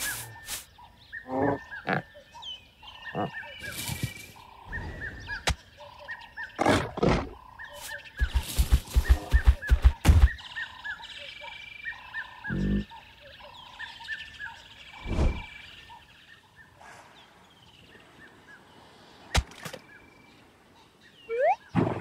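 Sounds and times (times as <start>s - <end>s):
birds chirping: 0.0s - 21.8s
low animal grunt: 12.5s - 12.9s.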